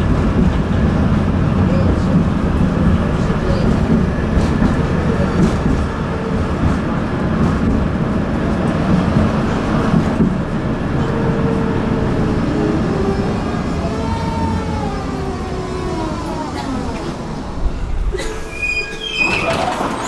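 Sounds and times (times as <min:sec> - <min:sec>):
tram wheels rumbling on rails: 0:00.0 - 0:20.0
faint wavering wheel squeal: 0:18.5 - 0:19.7.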